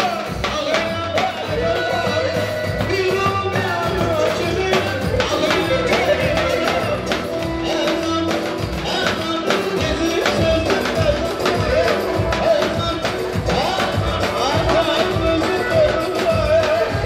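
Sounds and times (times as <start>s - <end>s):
music with steady percussion beat: 0.0s - 17.0s
sliding melody line: 0.0s - 17.0s.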